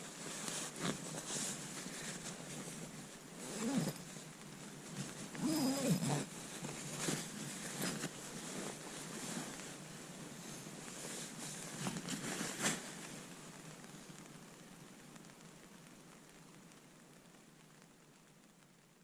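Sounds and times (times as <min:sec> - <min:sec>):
sleeping bag fabric rustling: 0:00.0 - 0:13.3.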